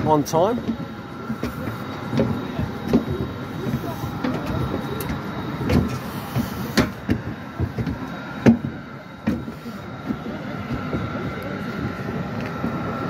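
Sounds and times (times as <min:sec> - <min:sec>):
footsteps on metal stairs: 0:00.0 - 0:11.2
steady mechanical hum: 0:00.0 - 0:13.0.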